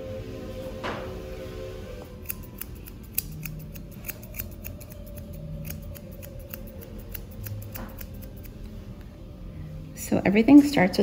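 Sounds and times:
shears snipping hair: 0:02.1 - 0:08.7.

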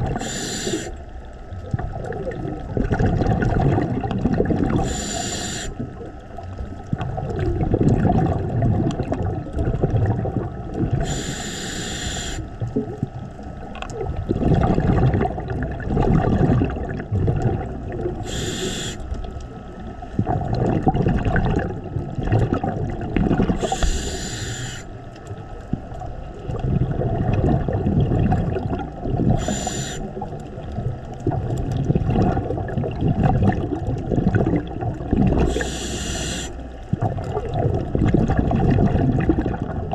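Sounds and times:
exhaled bubbles rumbling: 0:00.0 - 0:39.9
regulator hiss on inhalation: 0:00.2 - 0:01.0, 0:04.8 - 0:05.8, 0:11.0 - 0:12.5, 0:18.2 - 0:19.0, 0:23.6 - 0:25.0, 0:29.4 - 0:30.1, 0:35.5 - 0:36.6.

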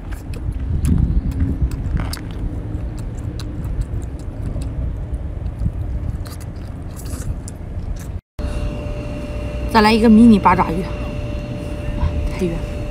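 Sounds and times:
chewing clicks and mouth sounds: 0:00.0 - 0:08.2
continuous low rumble: 0:00.0 - 0:12.9.

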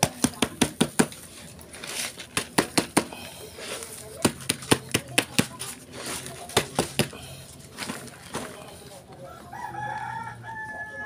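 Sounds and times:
soil rustling: 0:03.2 - 0:09.1
rooster crowing: 0:09.2 - 0:11.0.

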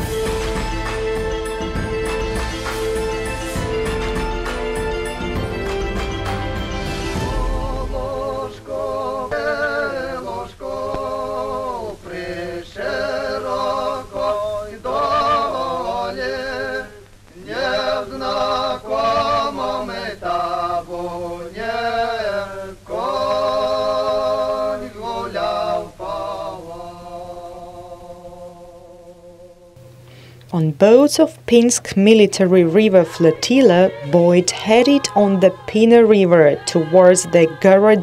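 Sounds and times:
person singing unaccompanied: 0:07.2 - 0:29.3, 0:30.6 - 0:38.0.

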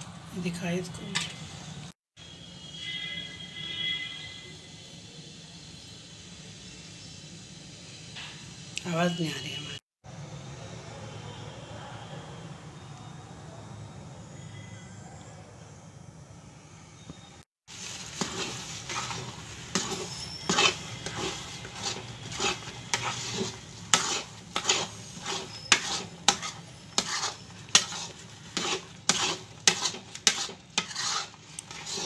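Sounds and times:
metal spatula scraping a pan: 0:17.7 - 0:32.0.

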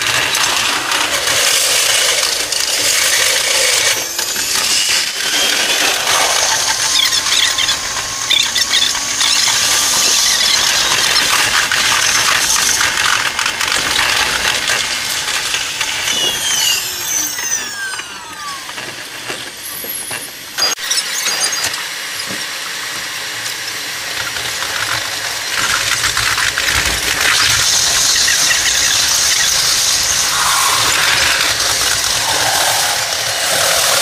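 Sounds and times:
train squealing: 0:00.0 - 0:12.9, 0:15.4 - 0:18.7, 0:27.2 - 0:34.0
falling whines of train slowing: 0:00.0 - 0:22.9, 0:27.0 - 0:34.0
sped-up train wheel and rail noise: 0:00.0 - 0:34.0.

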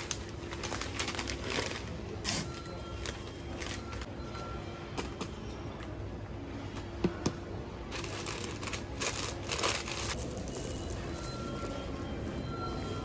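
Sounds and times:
wrapping paper rustling: 0:00.0 - 0:02.0, 0:07.9 - 0:11.7.

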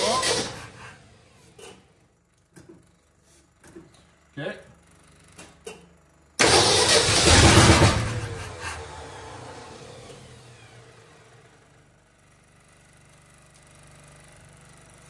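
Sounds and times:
truck engine spinning down whine: 0:00.0 - 0:01.2, 0:06.4 - 0:12.4.

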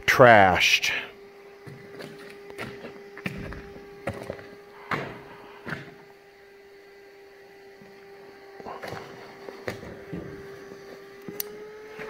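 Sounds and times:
footsteps on gritty rock: 0:01.6 - 0:04.6.

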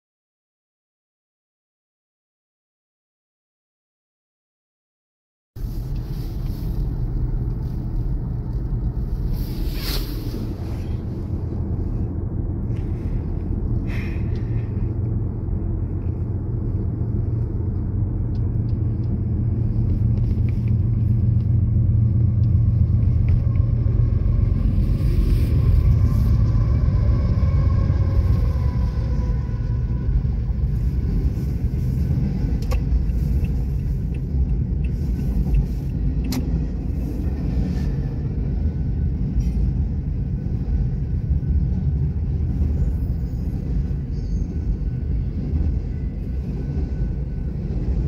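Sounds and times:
car cabin road rumble: 0:05.6 - 0:48.0.

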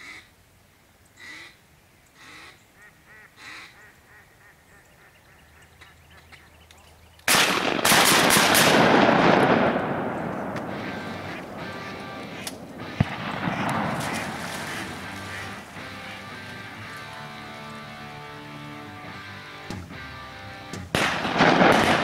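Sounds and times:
ducks quacking: 0:01.2 - 0:07.0, 0:10.2 - 0:22.0
shotgun blasts: 0:07.3 - 0:15.8, 0:20.9 - 0:22.0
rolling echo of gunshots: 0:07.3 - 0:15.9, 0:20.9 - 0:22.0.

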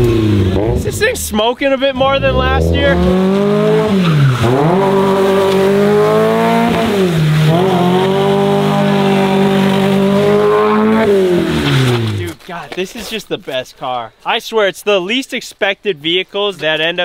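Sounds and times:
car engine revving high: 0:00.0 - 0:01.2, 0:02.0 - 0:12.2.

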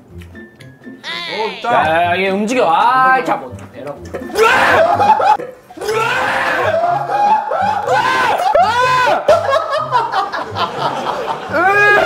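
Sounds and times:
background music with beat: 0:00.0 - 0:05.7
men yelping and laughing: 0:04.3 - 0:12.0.

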